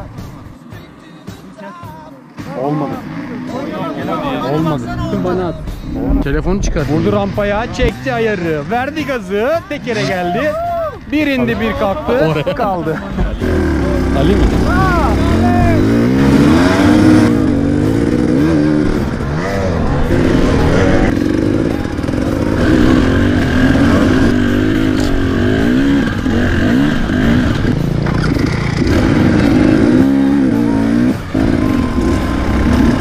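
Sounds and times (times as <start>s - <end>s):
motorcycle engine revving: 2.3s - 33.0s.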